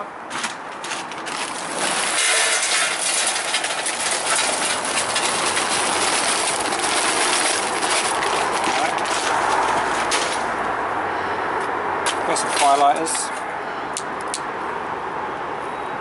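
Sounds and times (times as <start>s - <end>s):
charcoal clattering into metal tray: 0.4s - 10.6s, 12.4s - 13.3s
paper bag rustling: 0.9s - 10.6s, 12.4s - 13.4s.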